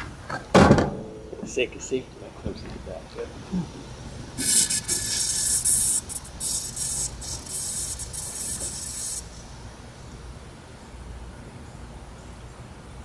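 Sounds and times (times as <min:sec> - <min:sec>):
battery venting hiss: 0:04.3 - 0:10.2.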